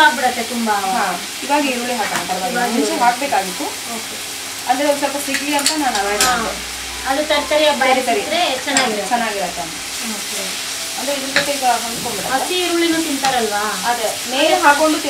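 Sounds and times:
greens sizzling in hot oil: 0.0 - 15.0.

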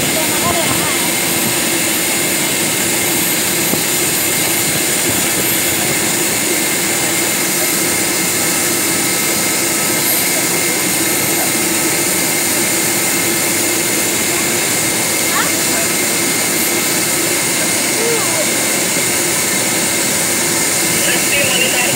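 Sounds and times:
jet turbine roar with high whine: 0.0 - 21.9.

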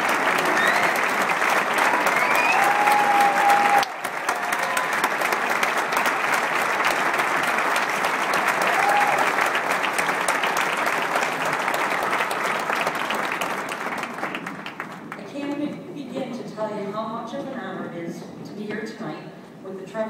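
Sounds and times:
audience applauding: 0.0 - 15.2.

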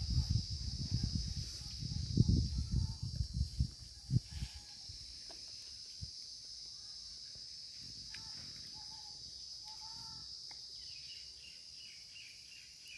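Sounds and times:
insects droning: 0.0 - 12.9
faint short chirping calls: 8.0 - 12.9.

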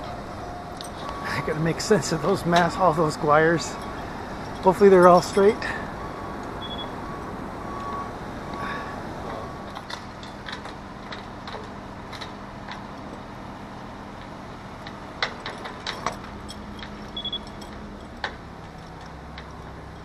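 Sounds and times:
engine drone: 0.0 - 20.0
metal rigging clinking against mast: 0.8 - 5.8, 15.2 - 20.0.

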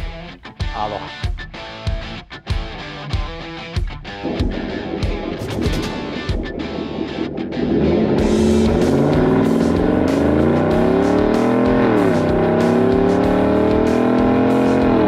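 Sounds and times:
truck engine accelerating: 4.2 - 15.0.

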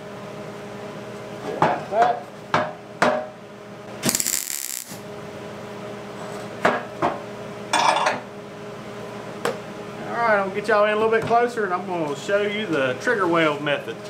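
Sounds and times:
steady hum: 3.2 - 14.0
welder hissing bursts: 4.0 - 5.0
welding gear clicking and clinking: 4.0 - 5.0.

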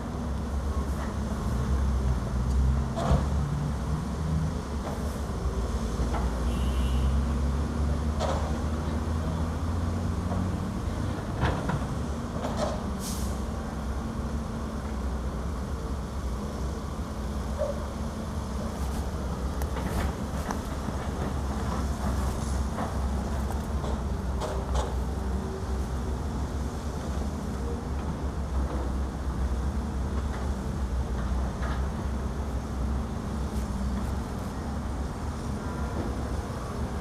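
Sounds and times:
diesel engines running: 7.6 - 37.0.

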